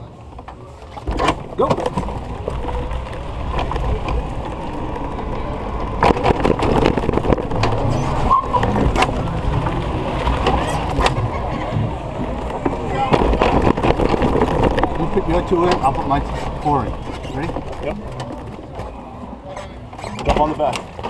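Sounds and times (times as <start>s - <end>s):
golf cart rumbling and rattling: 0.0s - 21.0s
cart knocking as it jolts: 5.8s - 18.8s.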